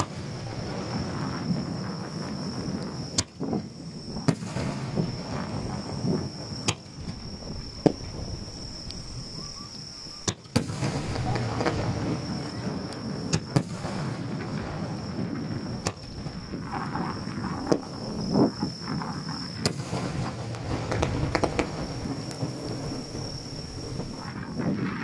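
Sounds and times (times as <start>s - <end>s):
fireworks bursting with bangs: 0.0s - 25.0s
deep boom: 10.6s - 12.6s, 19.8s - 24.3s
low rumble: 10.7s - 12.9s, 19.8s - 24.6s.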